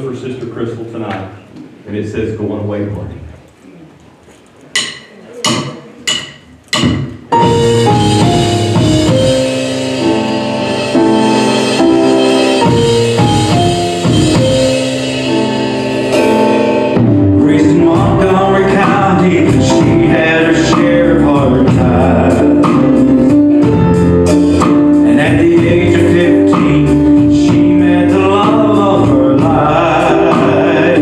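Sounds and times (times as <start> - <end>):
gospel band playing: 4.1 - 31.0
drumstick count-in taps: 4.8 - 7.3
drum kit: 4.8 - 31.0
keyboard chords: 4.8 - 31.0
acoustic guitar: 11.8 - 31.0.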